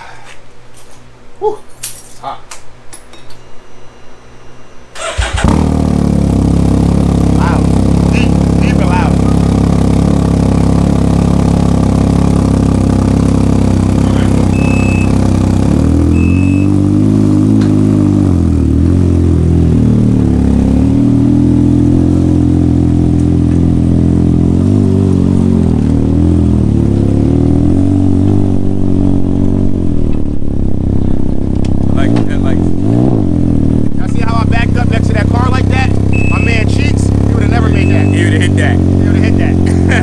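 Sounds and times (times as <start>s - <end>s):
motorcycle engine revving: 5.0s - 40.0s
short high beeps: 14.4s - 15.3s, 16.1s - 16.8s, 36.1s - 36.9s, 37.6s - 38.4s.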